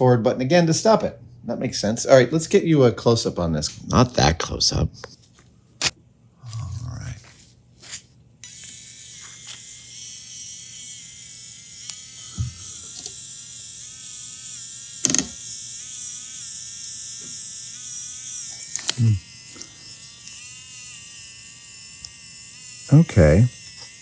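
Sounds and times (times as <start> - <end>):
small motor whirring: 7.8 - 24.0.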